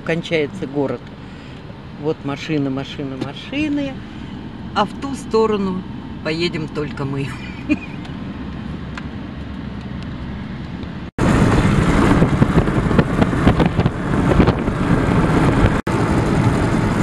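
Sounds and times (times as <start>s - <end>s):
car engine and road hum: 0.0s - 17.0s
wind and tyres rushing: 3.2s - 17.0s
wind buffeting microphone: 8.2s - 17.0s.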